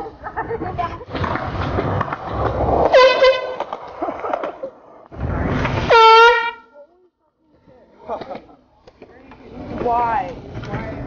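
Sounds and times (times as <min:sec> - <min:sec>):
air horn blasts: 0:02.9 - 0:03.6, 0:05.8 - 0:06.7.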